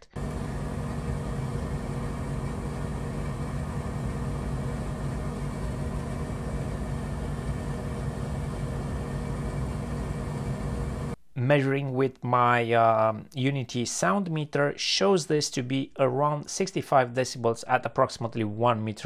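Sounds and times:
fume extractor air rush: 0:00.0 - 0:11.2
low motor hum: 0:00.0 - 0:11.2.

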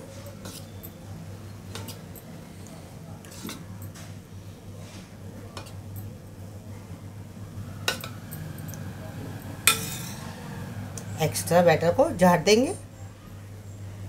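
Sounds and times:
metal spoon clinking on steel bowl: 0:09.7 - 0:10.2.

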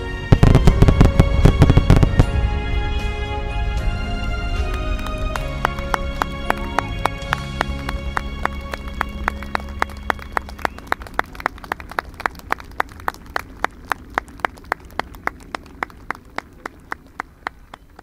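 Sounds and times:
held music notes: 0:00.0 - 0:13.8.

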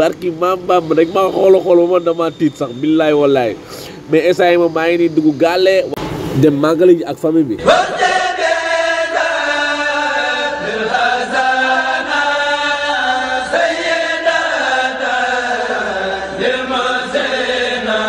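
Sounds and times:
person singing devotional chant: 0:07.6 - 0:18.0.

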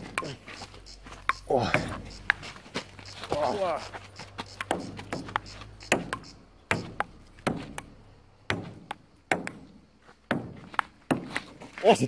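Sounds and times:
ping pong ball clicking: 0:04.5 - 0:09.6.

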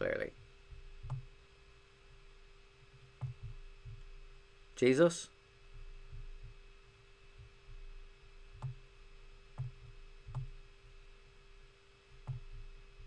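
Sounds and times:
faint steady hum: 0:00.0 - 0:13.0
computer mouse clicking: 0:01.0 - 0:01.3, 0:03.2 - 0:04.0, 0:08.6 - 0:08.8, 0:09.6 - 0:10.6, 0:12.2 - 0:12.7.

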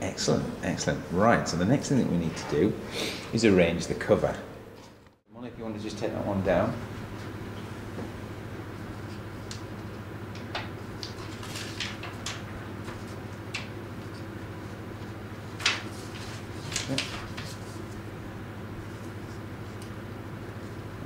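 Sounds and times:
steady low hum: 0:00.0 - 0:21.0
paper sheets rustling: 0:10.5 - 0:19.8.

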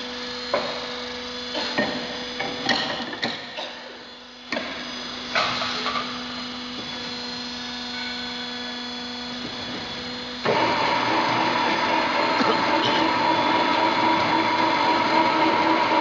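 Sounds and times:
machine humming: 0:04.0 - 0:16.0
metallic whine of rollers: 0:04.0 - 0:16.0.

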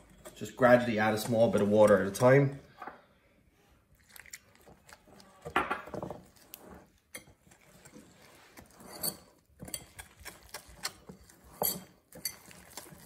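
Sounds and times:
whisk scraping through batter: 0:00.0 - 0:02.4, 0:06.0 - 0:13.0.

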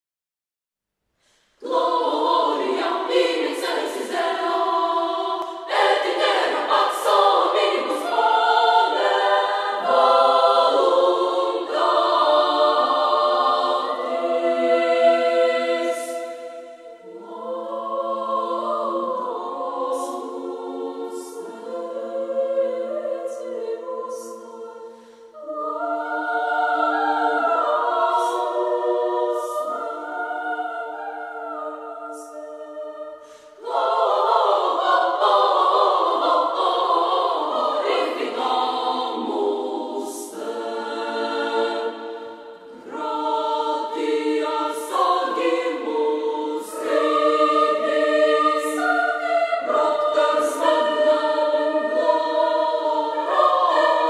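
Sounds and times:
girls choir singing: 0:01.6 - 0:54.0.

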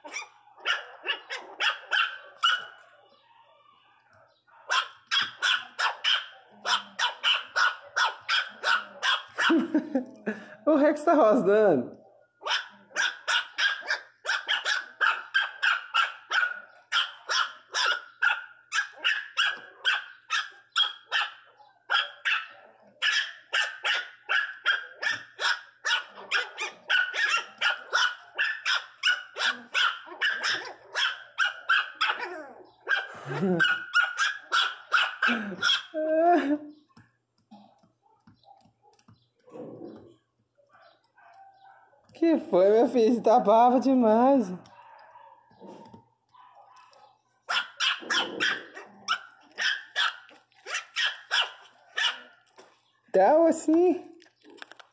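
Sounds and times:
puppies yapping barks: 0:00.0 - 0:09.8, 0:12.0 - 0:36.8, 0:37.5 - 0:42.2, 0:44.2 - 0:53.1
dog growls: 0:39.5 - 0:40.2, 0:48.0 - 0:49.1.

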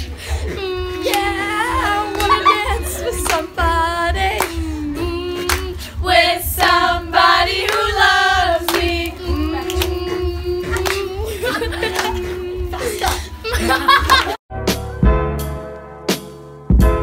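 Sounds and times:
girls singing: 0:00.0 - 0:14.3
hand claps: 0:02.1 - 0:02.5, 0:07.6 - 0:08.0, 0:08.7 - 0:14.4.

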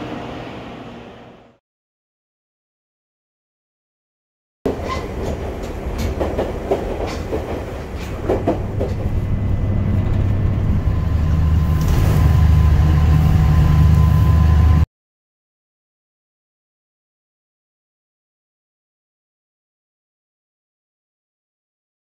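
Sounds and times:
train low rumble: 0:04.7 - 0:14.9.

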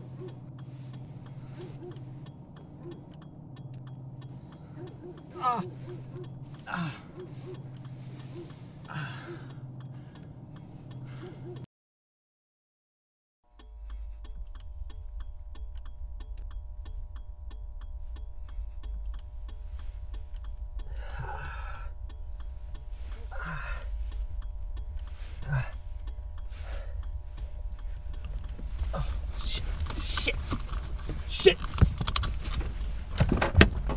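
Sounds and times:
sustained hum: 0:00.0 - 0:11.6, 0:13.5 - 0:33.9
man sobbing: 0:05.4 - 0:05.9, 0:06.7 - 0:07.3, 0:08.9 - 0:09.5, 0:20.9 - 0:21.9, 0:23.1 - 0:24.0, 0:25.4 - 0:25.8, 0:28.9 - 0:30.4
fast ticking: 0:13.5 - 0:33.9
low rumble: 0:13.5 - 0:33.9.

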